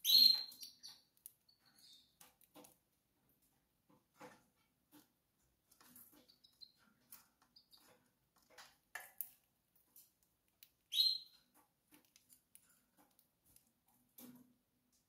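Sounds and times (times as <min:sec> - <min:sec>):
canary chirping: 0:00.0 - 0:02.8, 0:05.7 - 0:14.0.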